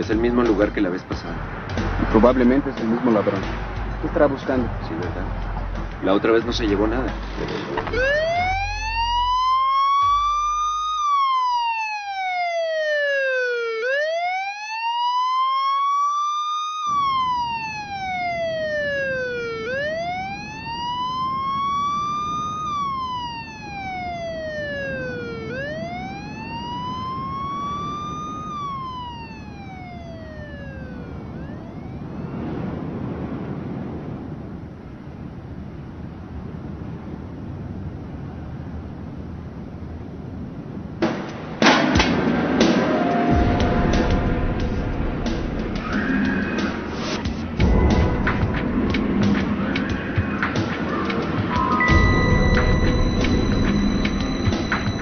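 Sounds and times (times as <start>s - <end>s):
steady background noise: 0.0s - 55.0s
police siren wailing: 7.8s - 33.4s, 42.6s - 55.0s.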